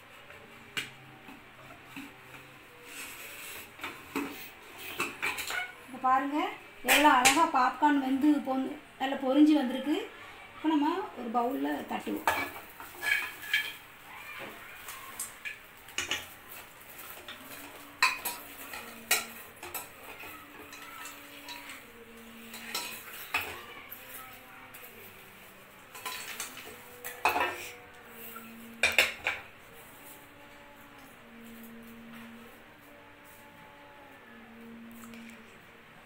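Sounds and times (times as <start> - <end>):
metal clinking on steel bowl: 12.0 - 13.8, 15.4 - 27.8.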